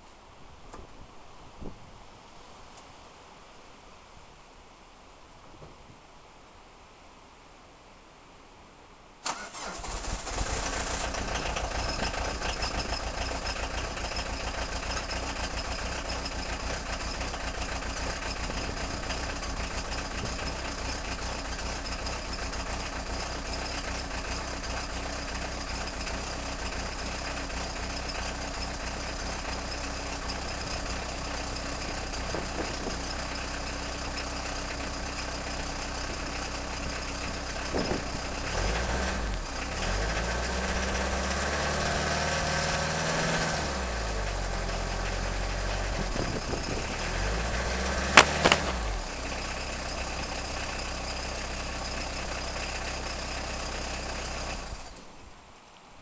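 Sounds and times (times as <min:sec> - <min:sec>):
diesel engine idling: 0:09.3 - 0:55.1
wind buffeting microphone: 0:37.6 - 0:38.4, 0:45.9 - 0:47.1
sharp knocks: 0:48.2 - 0:48.9.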